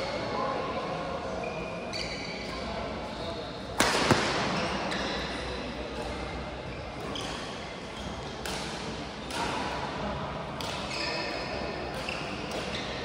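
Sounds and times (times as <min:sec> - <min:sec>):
shoe squeaks: 0:01.4 - 0:03.7, 0:06.7 - 0:08.3, 0:10.9 - 0:13.0.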